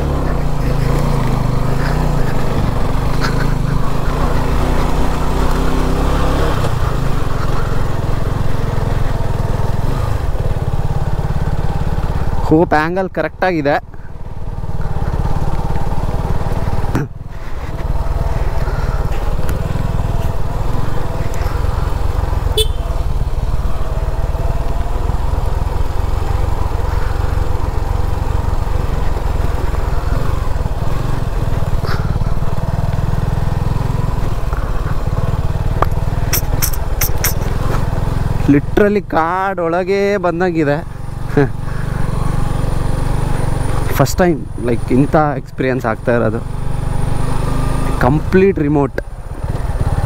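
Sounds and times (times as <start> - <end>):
motorcycle engine off-road: 0.0 - 50.0
sharp clicks: 35.8 - 37.8.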